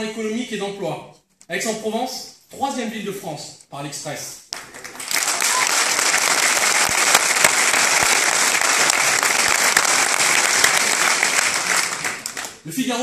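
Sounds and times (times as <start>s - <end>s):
audience applauding: 4.5s - 12.7s.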